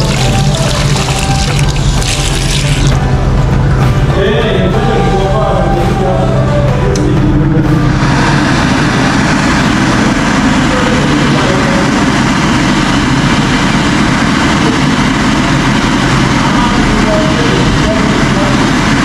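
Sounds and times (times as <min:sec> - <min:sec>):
background music: 0:00.0 - 0:11.0
low engine rumble: 0:00.0 - 0:19.0
street traffic rushing: 0:00.0 - 0:19.0.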